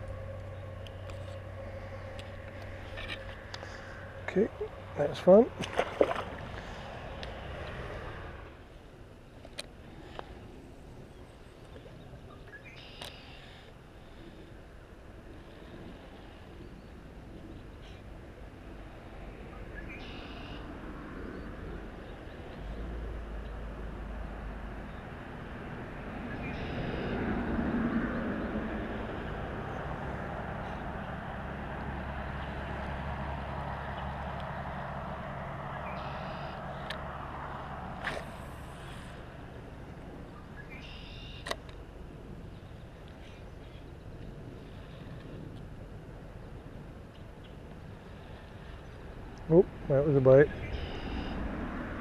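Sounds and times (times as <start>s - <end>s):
low outdoor rumble with hiss: 0.0s - 52.0s
bird chirping: 11.0s - 13.6s, 19.6s - 20.6s, 40.2s - 41.5s, 50.4s - 51.4s.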